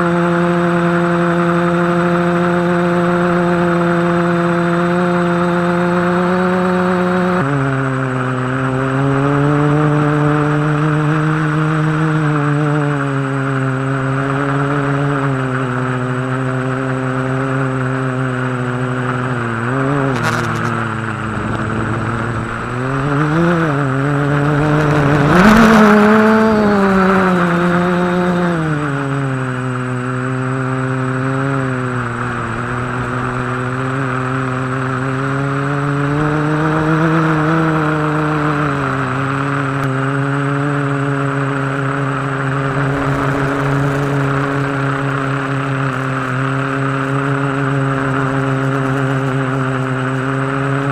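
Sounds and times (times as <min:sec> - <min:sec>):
drone motors buzzing whine: 0:18.6 - 0:48.7
rushing noise: 0:20.1 - 0:25.4.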